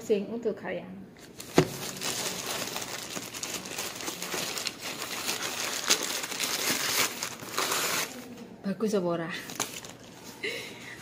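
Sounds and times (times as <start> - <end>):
plastic bag crinkling: 1.3 - 8.2.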